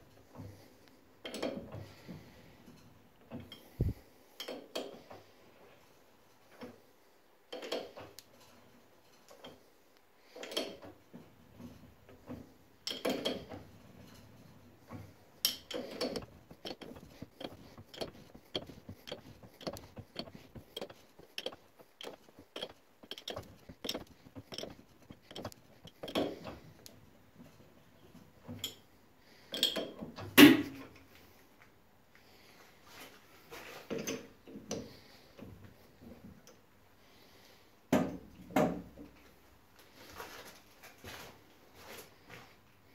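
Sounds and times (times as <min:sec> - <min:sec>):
lathe gears clicking and clunking: 0:15.5 - 0:26.6.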